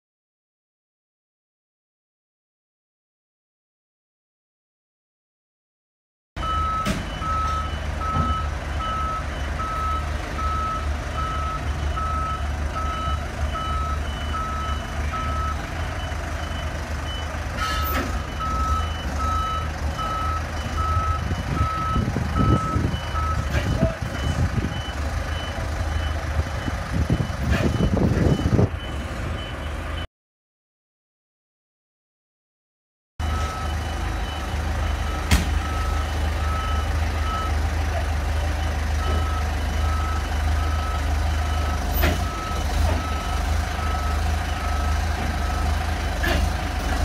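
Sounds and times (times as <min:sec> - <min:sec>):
truck engine running low: 0:06.4 - 0:30.1, 0:33.2 - 0:47.0.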